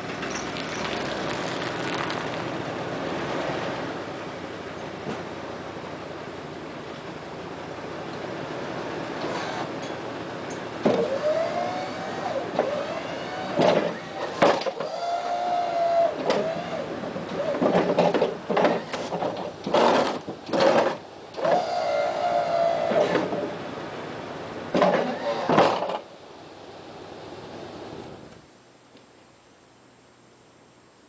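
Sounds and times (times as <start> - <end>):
hydraulic pump motor whining: 9.2 - 9.9, 10.8 - 23.5, 24.8 - 26.0.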